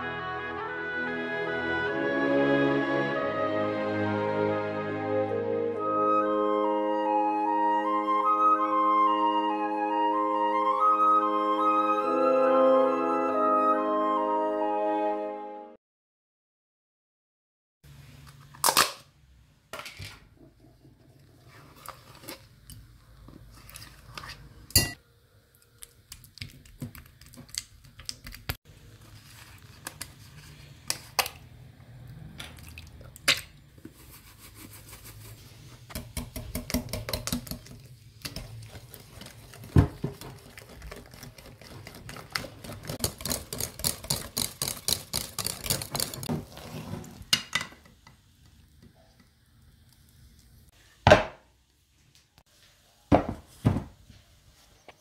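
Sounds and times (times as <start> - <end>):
spoon scraping a tub: 21.0 - 22.6, 37.3 - 47.3
whisk clicking against a bowl: 35.9 - 46.3.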